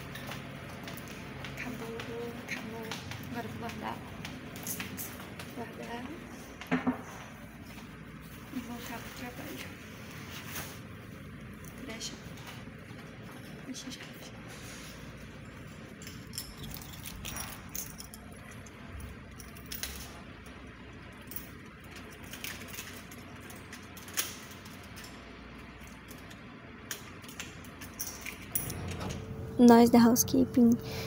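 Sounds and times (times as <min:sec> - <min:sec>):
keys jangling: 0:00.0 - 0:03.7, 0:15.1 - 0:30.9
low steady hum: 0:00.0 - 0:31.0.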